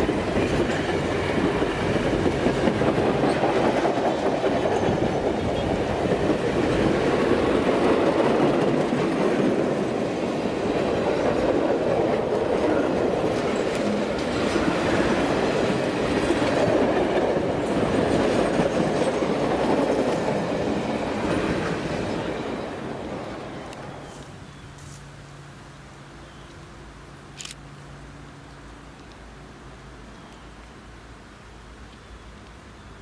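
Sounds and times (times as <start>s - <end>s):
clickety-clack over rail joints: 0.0s - 23.9s
train wheels rumbling on rails: 0.0s - 24.9s.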